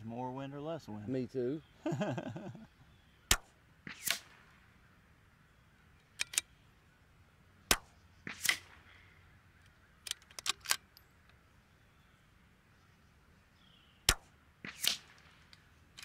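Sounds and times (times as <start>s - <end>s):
rifle bolt clicks and scraping: 6.0s - 6.6s, 9.6s - 11.4s, 14.7s - 16.0s
rifle shots: 7.7s - 8.9s, 14.1s - 15.5s.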